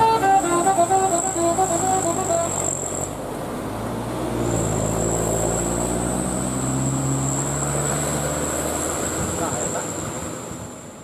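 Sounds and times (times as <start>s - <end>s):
bus diesel engine pulling away: 0.0s - 11.0s.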